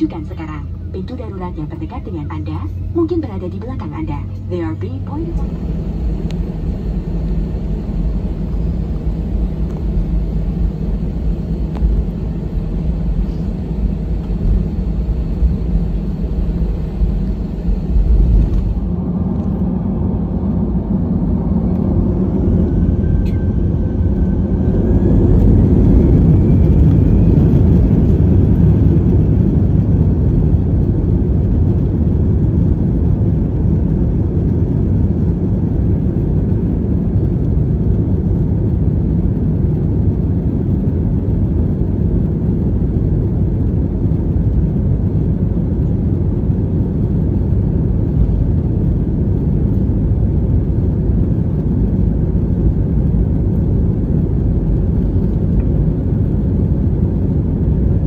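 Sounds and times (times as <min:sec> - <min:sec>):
jet engines roaring: 0:00.0 - 0:58.0.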